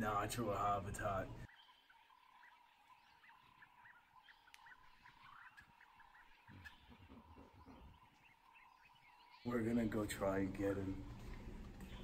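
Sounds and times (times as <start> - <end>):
faint steady hum: 0.0 - 6.0, 6.9 - 12.0
soft repeating chirps: 1.4 - 9.7.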